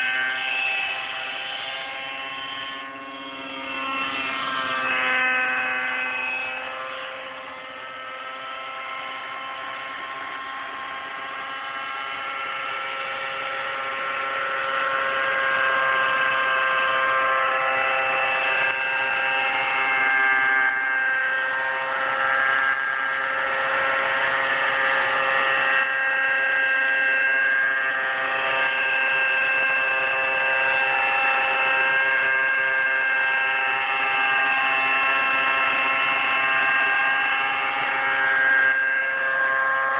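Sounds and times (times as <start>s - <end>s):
model helicopter engine whine: 0.0s - 39.9s.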